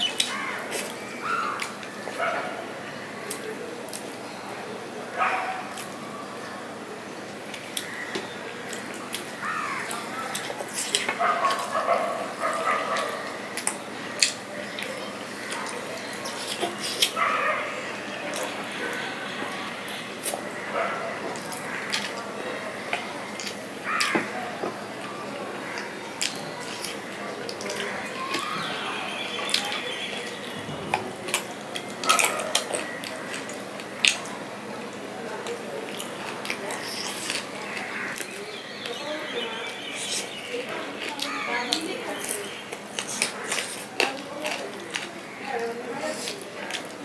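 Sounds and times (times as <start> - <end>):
wet eating sounds: 0.0 - 2.2, 7.5 - 47.0
fingers picking at food: 35.4 - 39.1, 39.8 - 47.0
lip smacks and sucking: 36.0 - 37.5, 42.7 - 44.1.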